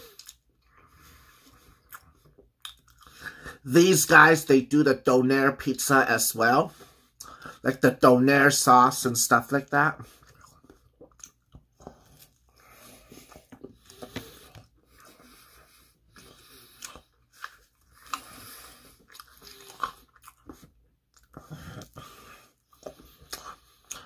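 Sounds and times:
chewing pizza crust crunches: 0:10.0 - 0:15.4, 0:16.1 - 0:24.0.

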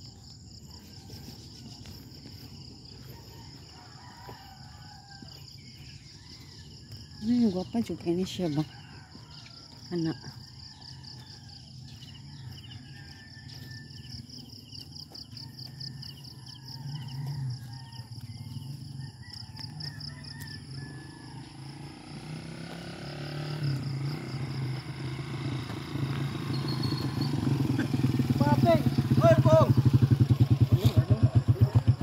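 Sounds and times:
insects trilling: 0:00.0 - 0:32.0
vehicle engine hum: 0:00.0 - 0:32.0.

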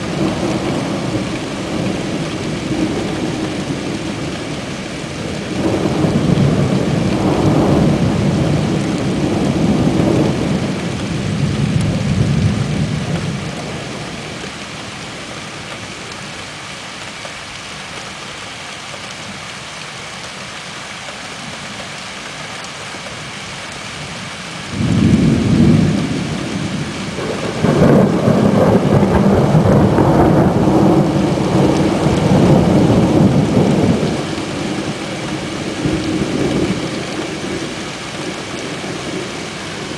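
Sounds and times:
steady rain: 0:00.0 - 0:39.9
thunder rolling: 0:24.7 - 0:39.3
loud thunder clap: 0:24.8 - 0:34.3.

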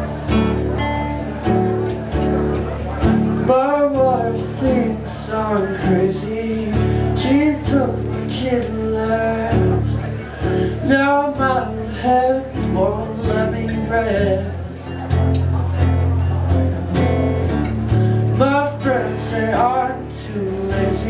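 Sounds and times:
acoustic guitars strummed: 0:00.0 - 0:21.0
man singing: 0:03.1 - 0:15.5, 0:17.9 - 0:21.0.

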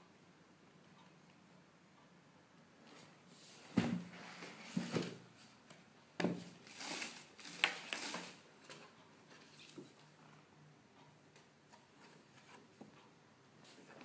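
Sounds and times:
paper rustling: 0:06.5 - 0:10.0.

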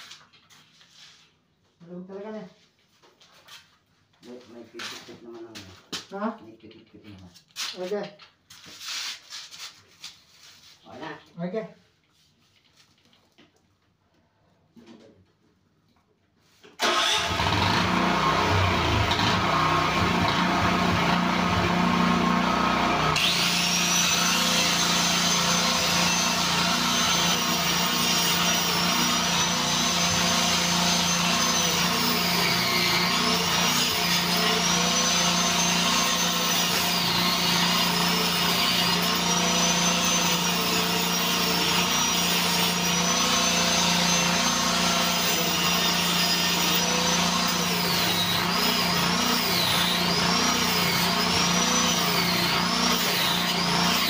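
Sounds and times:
angle grinder cutting concrete: 0:16.9 - 0:54.0.

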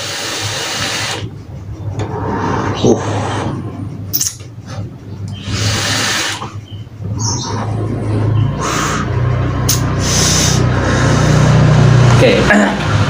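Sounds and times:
low hum: 0:01.0 - 0:13.0
breathy exhales: 0:08.6 - 0:11.7.

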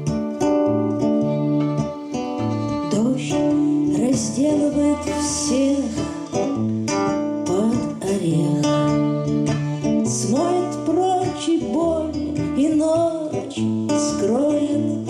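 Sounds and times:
violin playing: 0:00.0 - 0:07.6
strummed acoustic guitar: 0:00.0 - 0:15.0
woman singing: 0:02.6 - 0:15.0.

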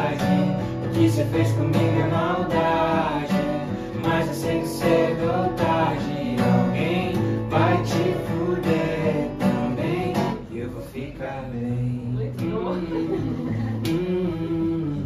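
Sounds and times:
acoustic guitar strumming chords: 0:00.0 - 0:10.9.

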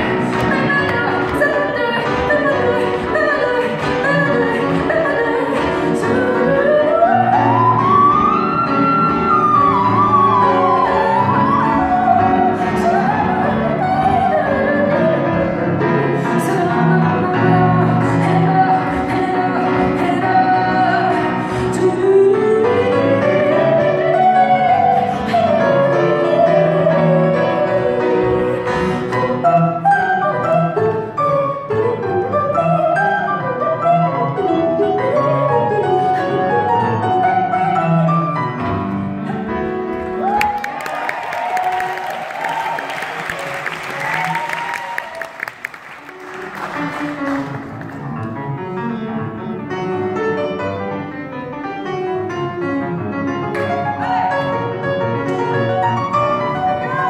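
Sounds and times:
woman singing: 0:00.0 - 0:40.3, 0:56.1 - 0:57.0
grand piano accompaniment: 0:00.0 - 0:57.0.

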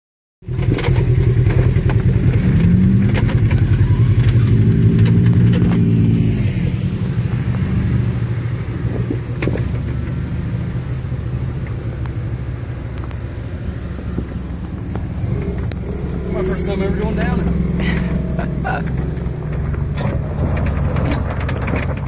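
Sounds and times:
off-road vehicle engine running: 0:00.4 - 0:22.0
sharp clicks and knocks: 0:18.8 - 0:22.0.

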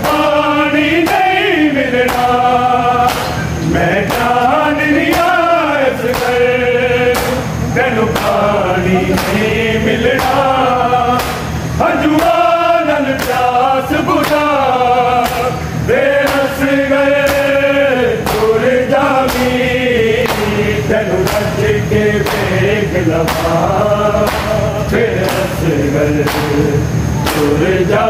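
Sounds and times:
group of men singing lament: 0:00.0 - 0:28.0
hands slapping bare chests: 0:11.2 - 0:11.5, 0:19.3 - 0:19.5.

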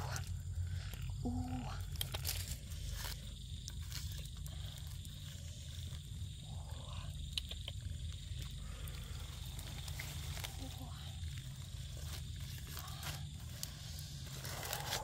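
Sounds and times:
wood fire crackling and popping: 0:00.0 - 0:15.0
embers and ash scraped aside: 0:08.9 - 0:15.0.

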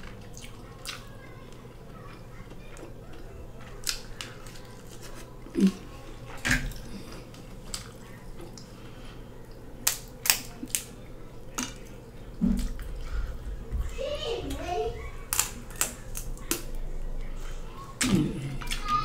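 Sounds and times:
wet eating clicks and smacks: 0:00.0 - 0:01.2, 0:02.1 - 0:05.8, 0:06.4 - 0:08.7, 0:09.5 - 0:12.0, 0:15.3 - 0:16.8.

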